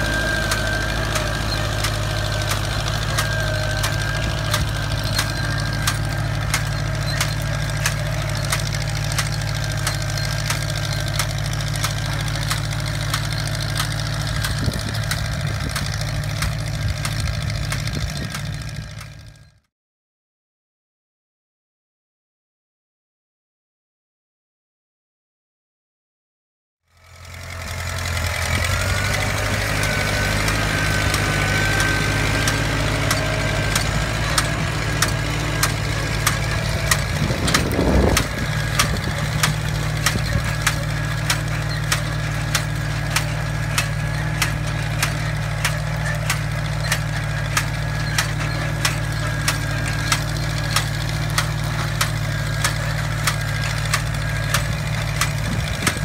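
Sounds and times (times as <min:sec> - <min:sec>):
rough rattle: 0:00.0 - 0:19.3, 0:27.1 - 0:56.0
planter mechanism clacking: 0:00.0 - 0:19.5, 0:27.1 - 0:56.0
tractor engine running: 0:00.0 - 0:19.6, 0:27.0 - 0:56.0.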